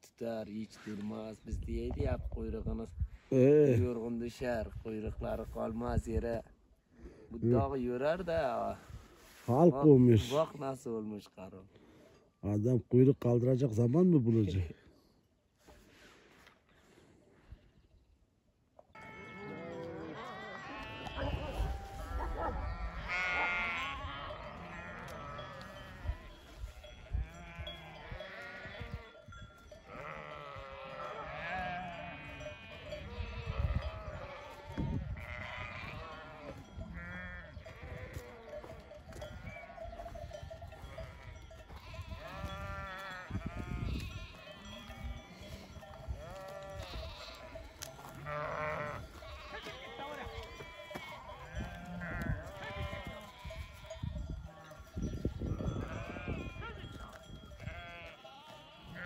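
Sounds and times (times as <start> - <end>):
flock of sheep bleating: 19.0 - 59.0.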